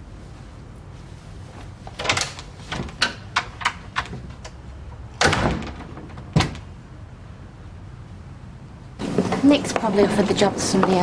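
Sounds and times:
door thud: 5.2s - 6.7s.

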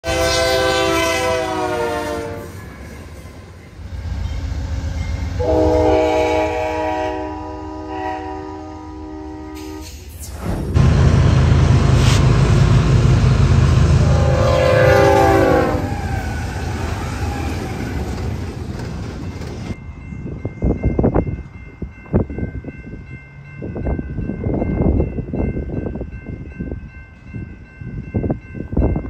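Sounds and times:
locomotive horn: 0.0s - 2.7s, 5.2s - 10.0s, 13.8s - 17.7s
diesel locomotives running: 0.0s - 28.8s
wind buffeting microphone: 15.9s - 29.0s.

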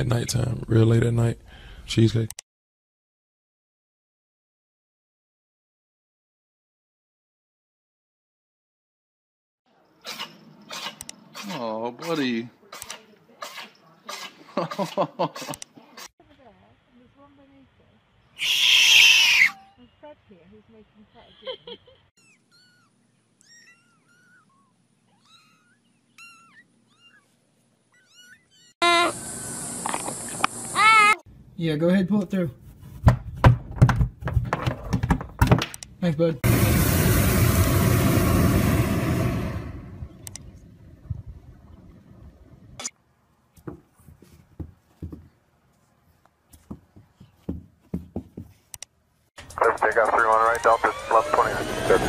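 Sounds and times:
kittens mewing: 18.4s - 19.6s, 22.2s - 29.2s
dog paws thumping on carpet: 43.6s - 45.8s, 46.5s - 48.7s.

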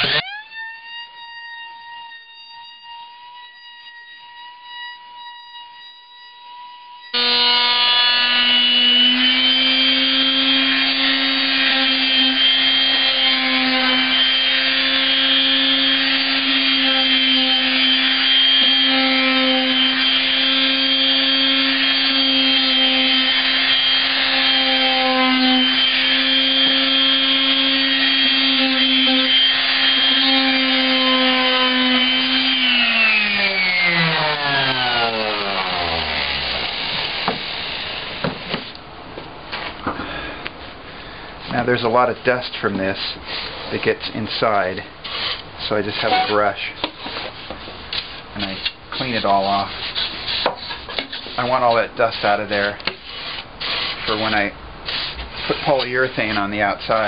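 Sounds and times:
electric sander whining and buzzing: 0.0s - 38.8s, 45.9s - 46.4s.

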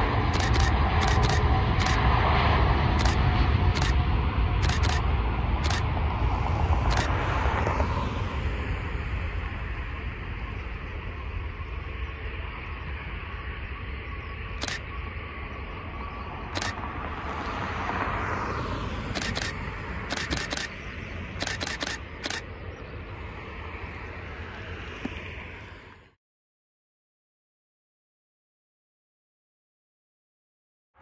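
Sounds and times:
outdoor rumble and rush: 0.0s - 26.2s
camera shutter clicks: 0.3s - 2.0s, 3.0s - 3.2s, 3.8s - 4.0s, 4.6s - 5.0s, 5.6s - 5.8s, 6.8s - 7.2s, 14.6s - 14.8s, 16.6s - 16.8s, 19.1s - 20.7s, 21.4s - 22.4s.

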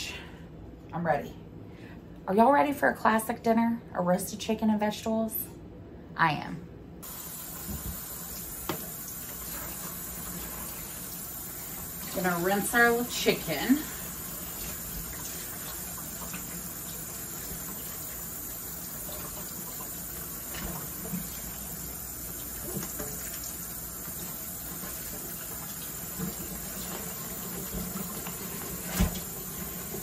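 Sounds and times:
faucet running into sink: 7.0s - 30.0s.

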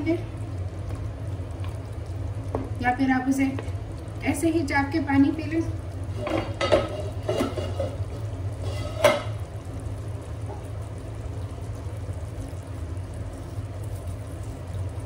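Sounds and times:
gravy simmering in a pot: 0.0s - 15.0s
steady low hum: 0.0s - 15.0s.

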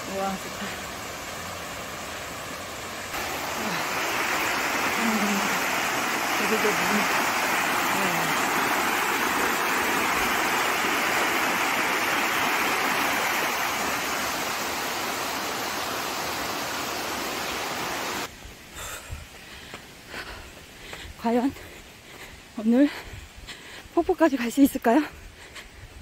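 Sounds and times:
water rushing over rocks: 0.0s - 18.3s.

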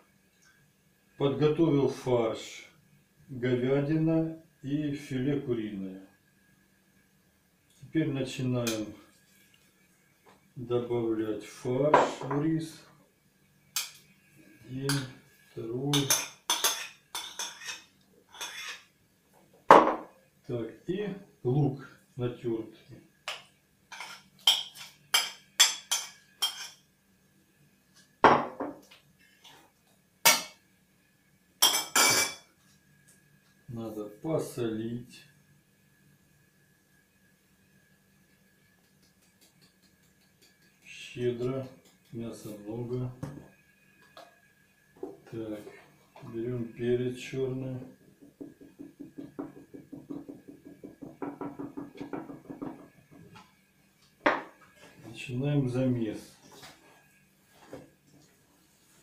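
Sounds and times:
pepper container shaken and tapped: 38.7s - 42.2s
spoon knocking against bowls: 38.8s - 40.9s, 48.2s - 53.0s.

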